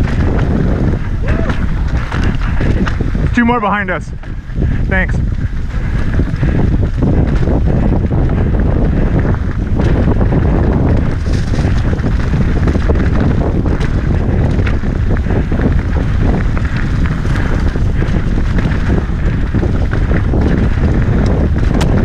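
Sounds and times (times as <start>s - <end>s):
bike clicks and rattles: 0.0s - 22.0s
tyres on loose dirt: 0.0s - 22.0s
wind buffeting microphone: 0.0s - 22.0s.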